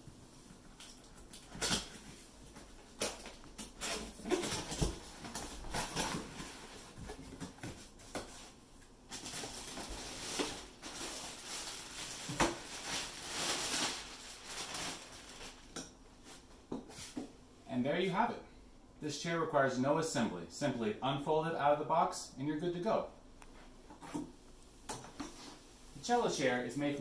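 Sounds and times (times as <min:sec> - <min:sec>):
plastic wrapping rustling: 0:00.8 - 0:16.5.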